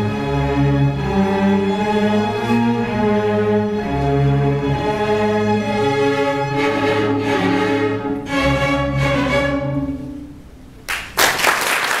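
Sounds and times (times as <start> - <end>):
string orchestra chords: 0.0 - 10.8
audience applause: 10.9 - 12.0.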